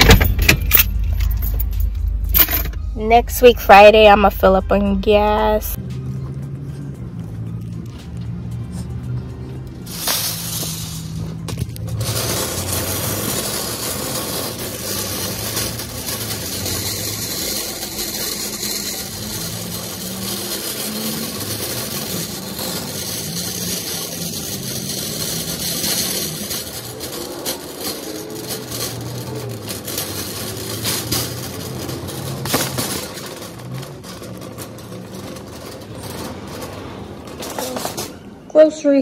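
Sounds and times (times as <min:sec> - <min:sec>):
cart wheels rumbling on asphalt: 0:00.0 - 0:39.0
wire basket rattling: 0:09.7 - 0:38.3.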